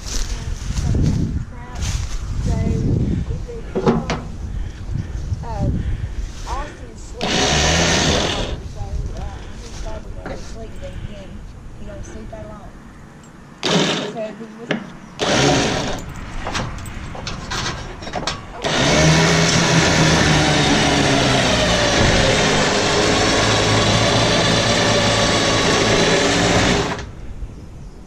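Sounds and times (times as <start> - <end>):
motor running: 7.2 - 8.7, 13.6 - 14.2, 15.2 - 16.1, 18.6 - 27.1.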